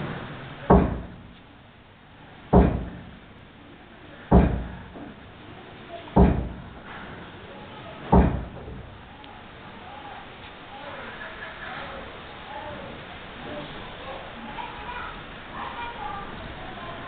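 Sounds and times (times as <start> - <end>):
heavy thumps: 0.6 - 1.4, 2.5 - 3.4, 4.2 - 5.3, 6.1 - 7.3, 8.0 - 9.1.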